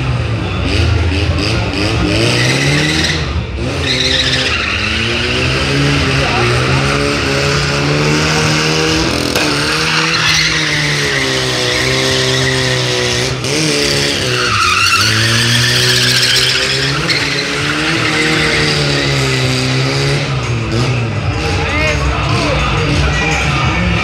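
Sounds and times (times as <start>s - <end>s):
car engine revving: 0.0s - 24.0s
tyres squealing on concrete: 2.2s - 6.9s, 9.2s - 13.2s, 13.8s - 19.8s.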